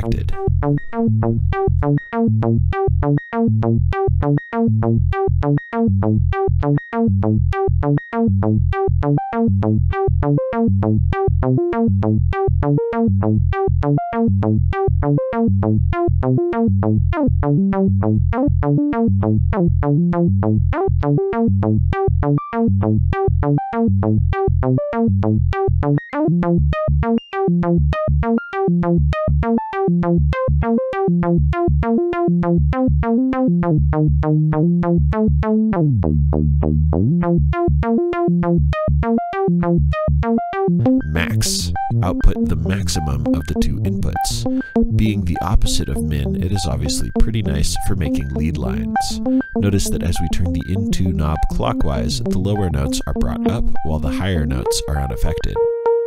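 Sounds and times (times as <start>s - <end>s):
synth note sequence: 40.8s - 56.0s.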